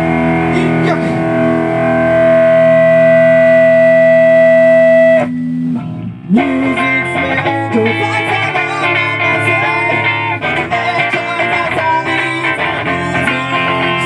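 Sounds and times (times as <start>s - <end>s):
rock band with distorted guitars: 0.0s - 14.0s.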